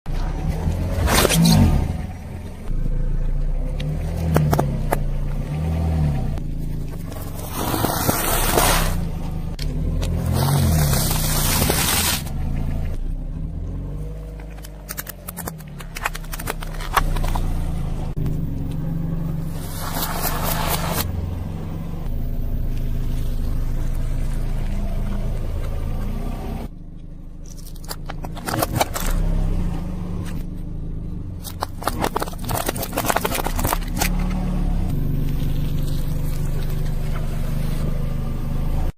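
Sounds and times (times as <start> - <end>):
car engine hum: 0.1 - 38.9
tyre crunching objects: 6.7 - 12.6, 14.1 - 18.8, 27.4 - 29.5, 31.4 - 37.9.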